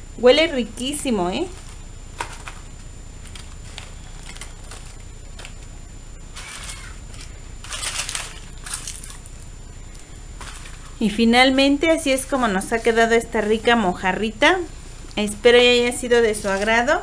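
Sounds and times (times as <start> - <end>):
husks and foil crinkling: 1.5 - 5.7, 6.3 - 11.1.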